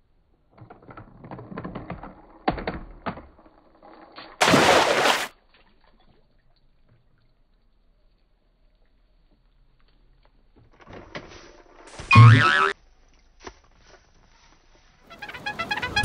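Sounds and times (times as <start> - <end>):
toy car rattling down a ramp: 0.6 - 4.4.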